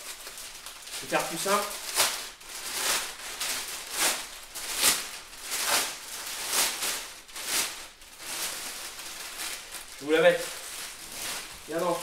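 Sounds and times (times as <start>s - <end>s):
plastic wrapping rustling: 0.0s - 12.0s.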